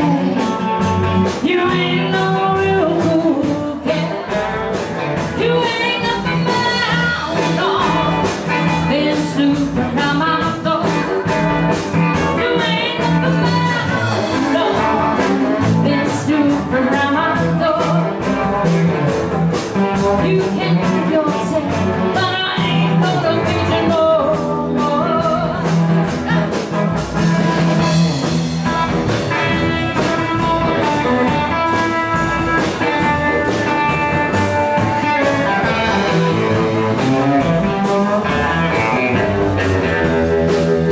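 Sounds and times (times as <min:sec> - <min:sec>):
woman singing: 0:00.0 - 0:18.6, 0:20.0 - 0:26.8
rock and roll band playing: 0:00.0 - 0:40.9.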